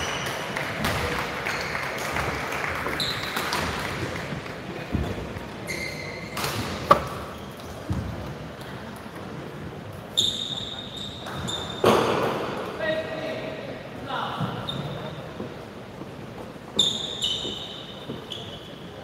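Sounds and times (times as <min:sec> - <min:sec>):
shoes squeaking on wooden floor: 0:02.8 - 0:04.0, 0:04.8 - 0:08.2, 0:10.1 - 0:12.1, 0:14.4 - 0:19.0.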